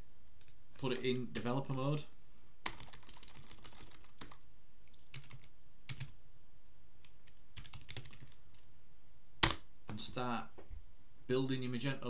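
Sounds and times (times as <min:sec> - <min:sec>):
computer keyboard keys clicking: 0:02.6 - 0:04.4, 0:05.0 - 0:06.1, 0:07.2 - 0:08.6.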